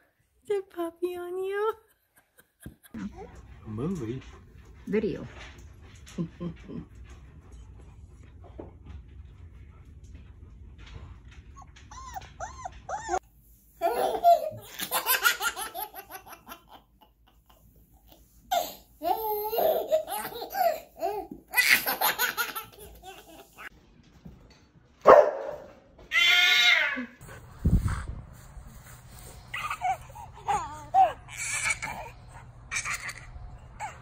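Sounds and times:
baby laughing: 13.8s - 23.7s, 29.5s - 34.0s.

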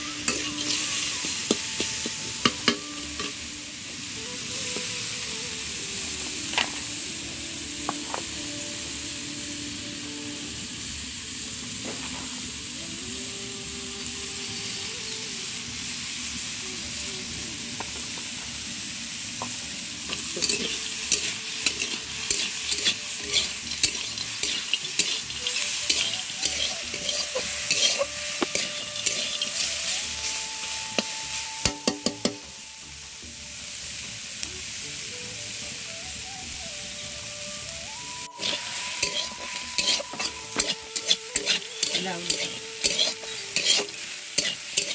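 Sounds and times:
greens sizzling in a wok: 0.0s - 44.9s
metal spatula scraping pan: 0.2s - 3.4s, 20.1s - 29.9s, 38.3s - 44.9s.

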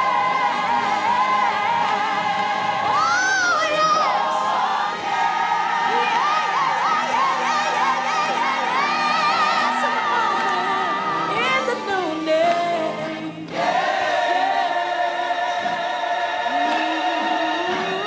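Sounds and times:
women's choir singing gospel: 0.0s - 18.0s.

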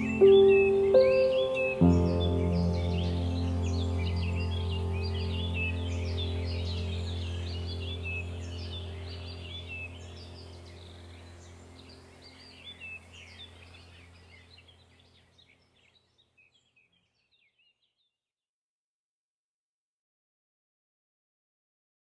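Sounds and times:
steady low drone: 0.0s - 14.7s
birds chirping: 0.0s - 17.9s.

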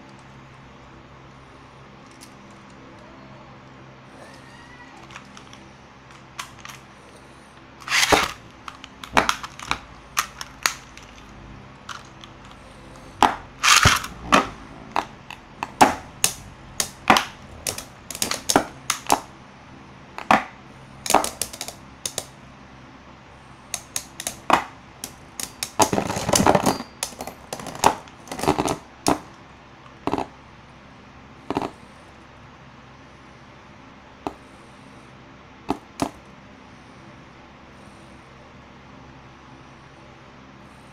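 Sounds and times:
spinning tops clacking: 7.8s - 12.5s, 13.6s - 14.5s.

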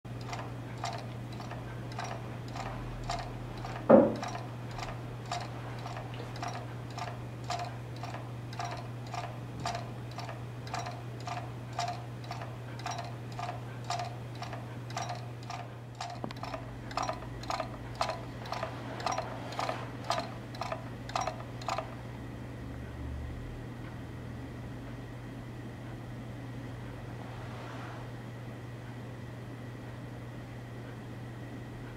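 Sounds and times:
wooden wheel model ticking: 0.1s - 22.0s
low steady hum: 0.1s - 31.9s
knock with falling tone: 3.9s - 4.2s.

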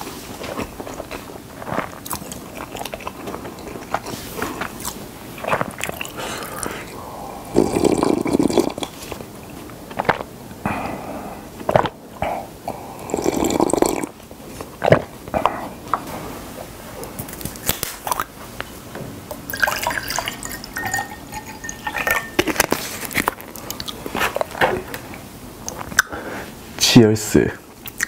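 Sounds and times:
person gulping: 5.4s - 9.2s, 10.7s - 14.2s, 19.5s - 22.7s
water poured into a glass: 19.5s - 22.2s.

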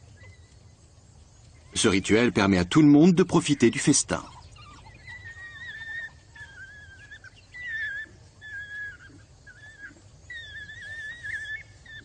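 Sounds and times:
wild dogs whining: 3.5s - 12.0s.

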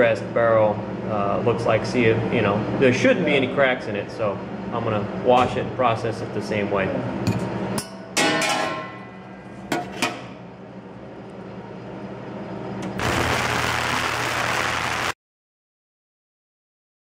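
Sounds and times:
cleaning equipment hissing and humming: 12.8s - 15.2s.

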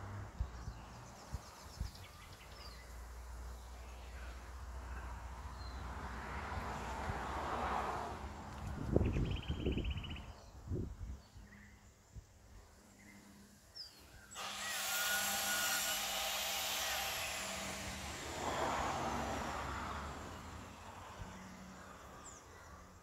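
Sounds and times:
power tool whining: 14.3s - 21.0s.

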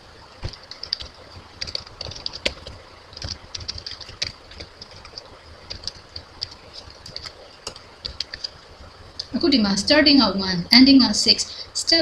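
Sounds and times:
typing on computer keyboard: 0.4s - 8.6s.

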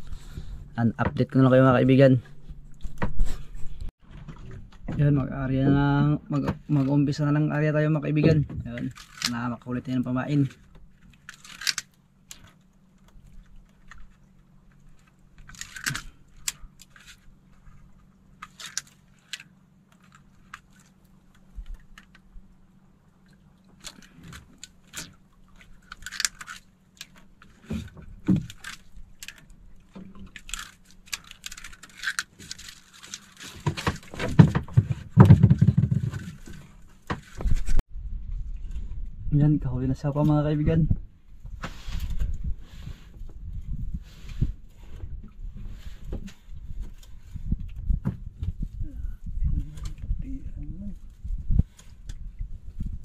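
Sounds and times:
low rumbling bursts: 37.5s - 53.0s.

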